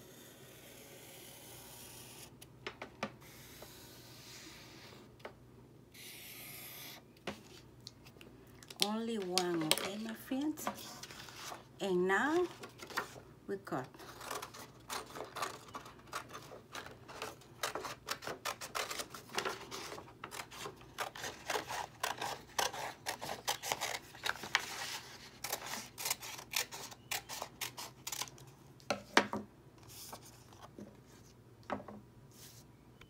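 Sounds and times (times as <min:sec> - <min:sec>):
scissors cutting paper: 0:14.0 - 0:24.8, 0:25.4 - 0:28.4.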